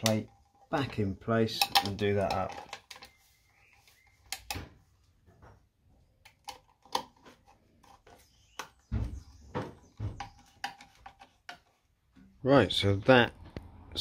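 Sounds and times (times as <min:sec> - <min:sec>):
metal clicks and taps: 0:01.6 - 0:03.2.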